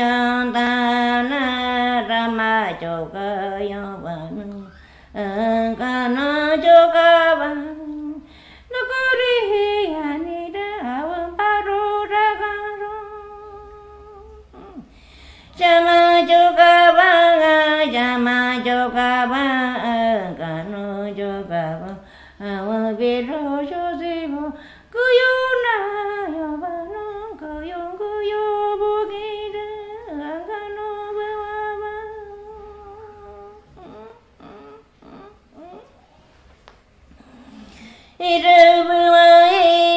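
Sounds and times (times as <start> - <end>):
person singing a slow chant: 25.9 - 36.0.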